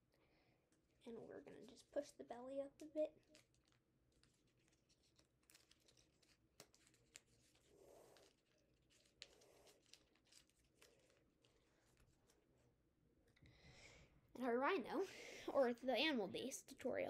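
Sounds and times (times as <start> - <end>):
paper crinkling: 2.8 - 12.7
paper rustling: 2.8 - 12.7.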